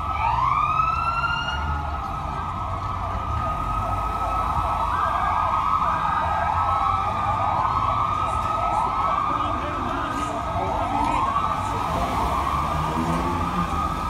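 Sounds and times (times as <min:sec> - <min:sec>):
low rumble of vehicles: 0:00.0 - 0:14.0
police sirens wailing: 0:00.0 - 0:14.0.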